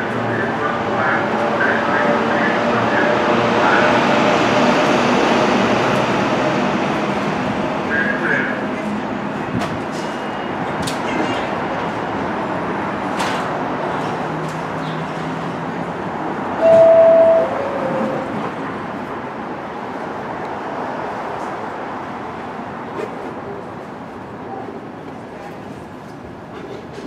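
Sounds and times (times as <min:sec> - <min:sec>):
subway train rumbling: 0:00.0 - 0:27.0
high-pitched tone: 0:16.6 - 0:18.4.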